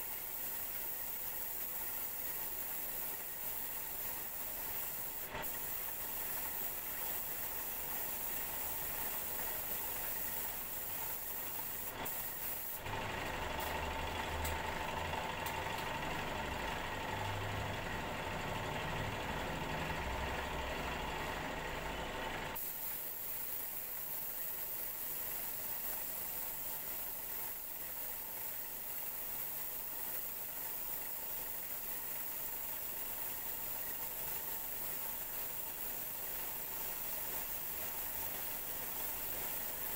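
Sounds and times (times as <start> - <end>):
spray gun hissing: 0.0 - 13.9, 22.6 - 39.9.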